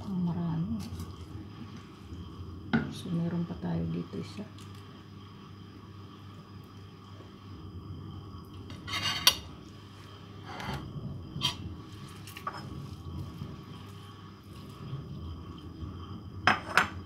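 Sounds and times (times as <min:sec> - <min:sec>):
fork scraping plate: 0:08.7 - 0:09.5, 0:10.4 - 0:10.8, 0:11.4 - 0:11.6.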